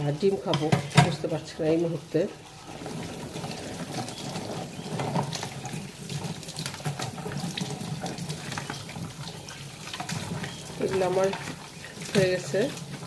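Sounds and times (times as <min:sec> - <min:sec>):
tap water running into a sink: 0:00.0 - 0:13.0
dishes clinking: 0:00.5 - 0:01.3.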